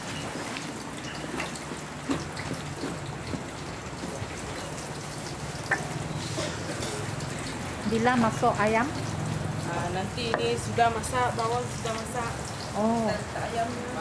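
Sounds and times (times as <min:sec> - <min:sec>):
spice paste sizzling and popping: 0:07.0 - 0:13.4.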